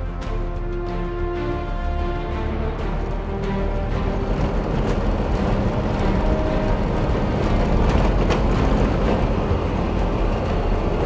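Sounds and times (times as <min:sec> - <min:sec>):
vehicle driving on gravel: 0:03.3 - 0:11.0.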